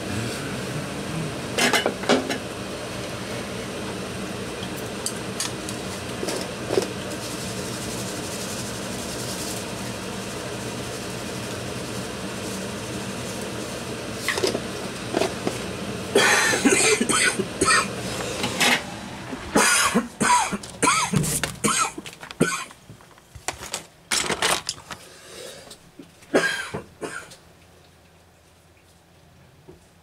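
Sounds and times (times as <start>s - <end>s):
steady hum: 0.0s - 23.8s.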